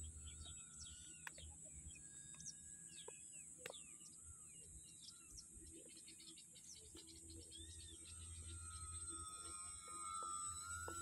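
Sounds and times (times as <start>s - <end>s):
bird ticking calls: 0.0s - 8.8s
small birds chirping: 0.0s - 10.2s.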